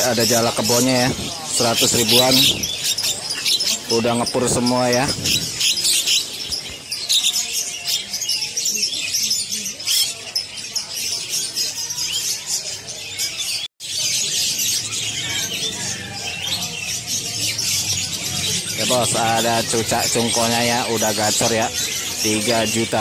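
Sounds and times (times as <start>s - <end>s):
songbirds chirping in chorus: 0.0s - 23.0s.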